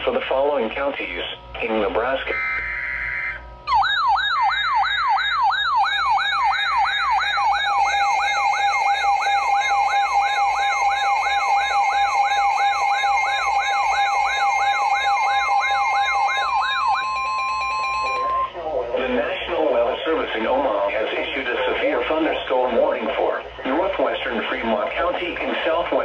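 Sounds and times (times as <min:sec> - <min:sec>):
emergency siren yelping: 0:02.3 - 0:18.6.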